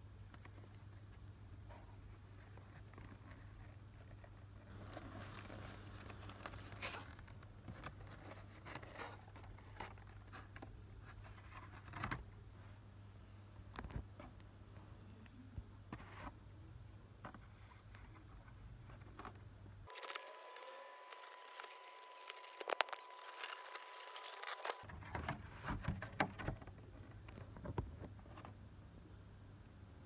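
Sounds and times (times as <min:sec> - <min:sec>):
plastic crinkling: 0:19.8 - 0:24.9.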